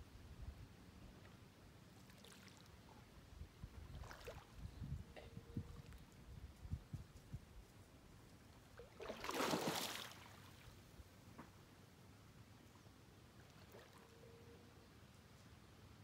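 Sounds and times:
water splash: 8.8s - 10.6s.

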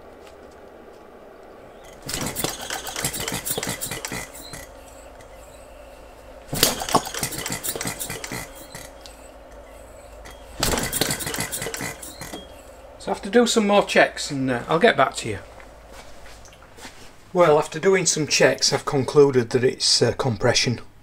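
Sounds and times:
model engine clattering: 1.9s - 5.4s, 6.5s - 8.9s, 10.2s - 12.4s.

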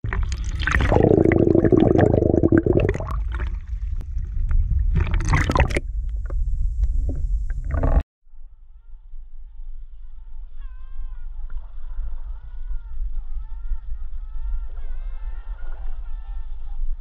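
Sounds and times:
water sloshing and gurgling: 0.0s - 8.0s
wind rumbling on microphone: 0.9s - 8.0s.

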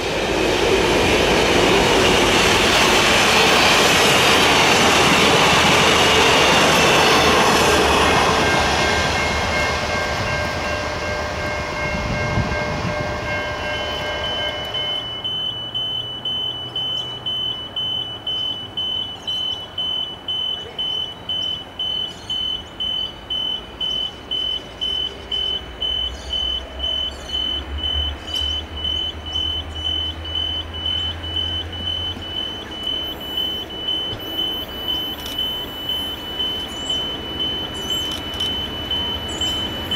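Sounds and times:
low rumble of approaching train: 0.0s - 39.9s
train carriages rumbling past: 0.0s - 39.9s
level crossing bell dinging: 6.8s - 28.0s.

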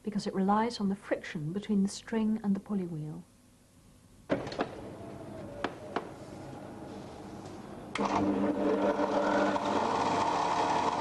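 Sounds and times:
drill press motor humming: 4.8s - 11.0s.

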